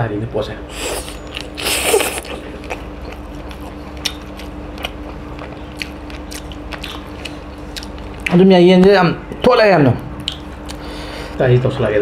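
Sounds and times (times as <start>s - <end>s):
wet chewing clicks: 1.3s - 8.4s, 10.2s - 10.8s.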